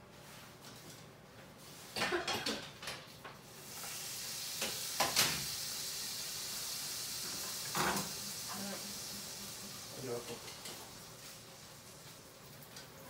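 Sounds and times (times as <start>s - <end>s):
kitchen utensils clattering: 1.9s - 3.1s
food sizzling in a frying pan: 3.4s - 13.0s.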